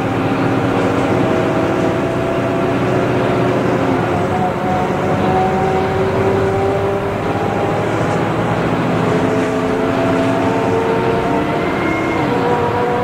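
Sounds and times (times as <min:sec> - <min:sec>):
bus engine drone with whine: 0:00.0 - 0:13.0.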